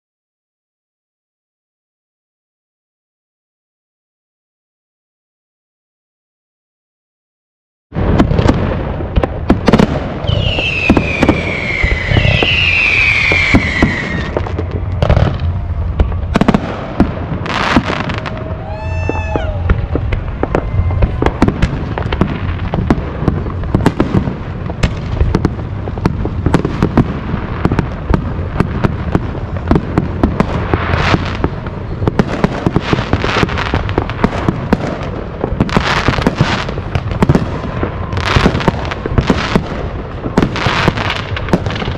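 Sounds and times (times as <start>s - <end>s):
fireworks bangs and crackles: 7.9s - 41.9s
falling firework whistles: 9.7s - 23.0s, 34.7s - 39.6s
brief pitched tone: 20.5s - 21.4s.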